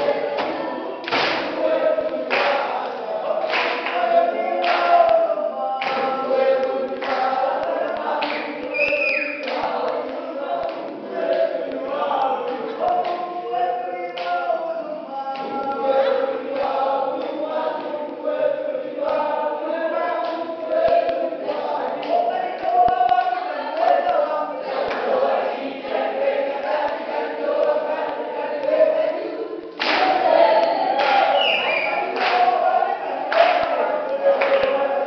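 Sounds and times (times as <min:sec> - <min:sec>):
group singing unaccompanied: 0:00.0 - 0:35.0
hand claps: 0:00.4 - 0:02.7, 0:03.4 - 0:05.2, 0:05.8 - 0:13.2, 0:14.2 - 0:14.4, 0:29.6 - 0:32.6, 0:33.3 - 0:34.8.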